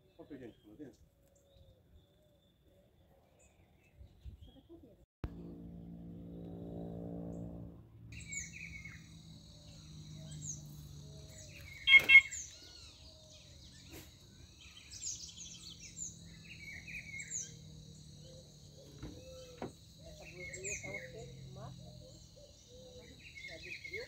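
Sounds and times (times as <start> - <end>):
birds chirping: 8.2 - 24.0.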